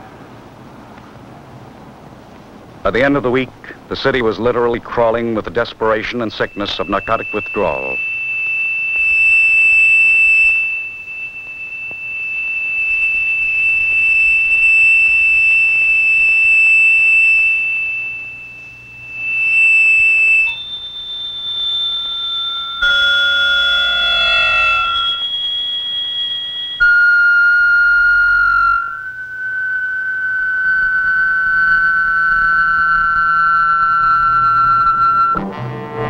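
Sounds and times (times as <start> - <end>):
high piercing held tone: 3.0 - 36.0
tense chord of held tones: 5.0 - 12.4, 17.0 - 29.7.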